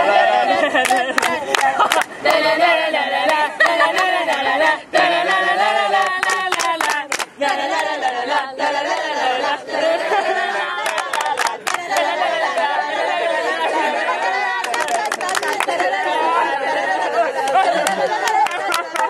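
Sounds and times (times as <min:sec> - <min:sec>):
group singing a chant: 0:00.0 - 0:19.0
hand claps: 0:00.8 - 0:02.4, 0:06.0 - 0:07.9, 0:10.8 - 0:12.7, 0:14.6 - 0:15.9, 0:17.4 - 0:19.0.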